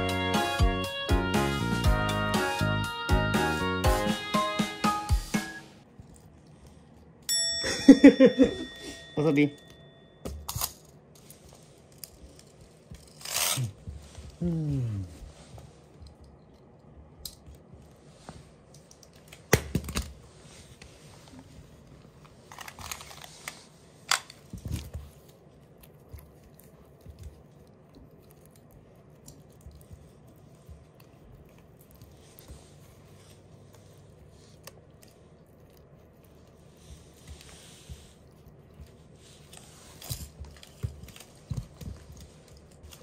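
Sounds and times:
puppy rustling and scrabbling: 0:24.4 - 0:33.5, 0:36.0 - 0:43.0.

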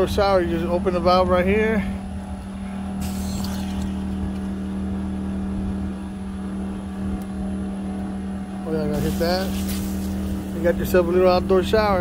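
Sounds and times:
generator engine running: 0:00.0 - 0:12.0
brief hiss: 0:03.0 - 0:03.9, 0:09.0 - 0:10.5.

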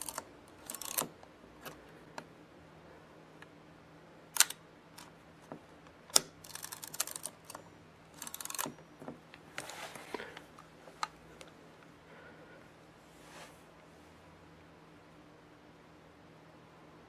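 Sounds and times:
shutter and film advance ratcheting: 0:00.0 - 0:01.1, 0:08.2 - 0:08.7.

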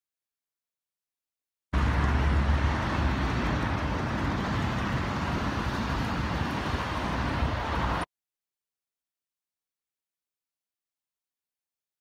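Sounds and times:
road traffic rushing: 0:01.7 - 0:08.1.

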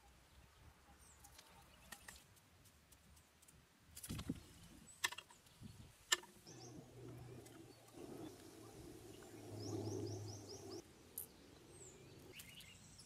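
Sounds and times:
faint bird chirps: 0:04.3 - 0:13.0.

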